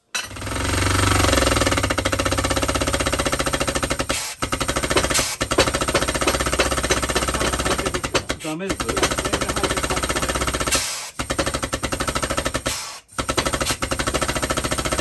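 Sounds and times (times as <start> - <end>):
pneumatic air hammer rattling: 0.0 - 15.0.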